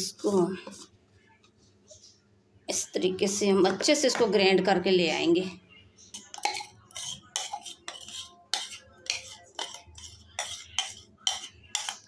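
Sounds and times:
metal spoon scraping a jar: 6.1s - 12.0s.

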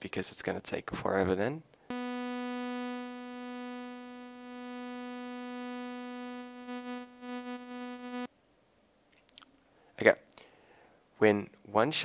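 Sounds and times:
buzzy synth held note: 1.9s - 8.3s.

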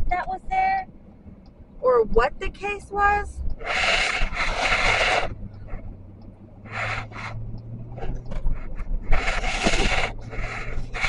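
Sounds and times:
car cabin hum: 0.0s - 11.0s
hand rubbing on microphone: 3.6s - 5.8s, 8.0s - 11.0s.

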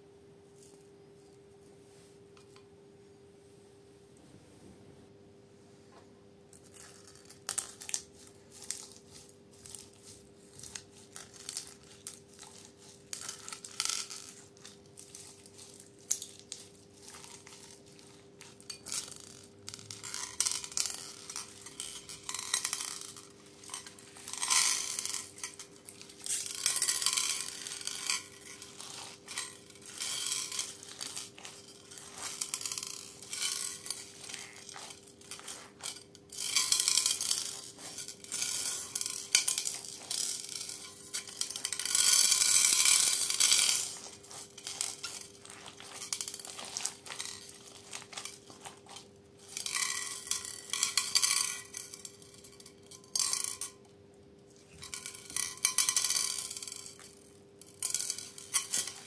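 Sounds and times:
slime crackling and squishing: 6.6s - 50.8s
beads clicking against glass dish: 6.6s - 53.8s, 54.7s - 59.0s.

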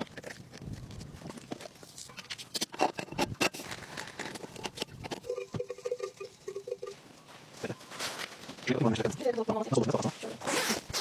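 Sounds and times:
camping gear clicks and knocks: 0.0s - 5.3s
cowbell clanking: 5.2s - 7.0s.

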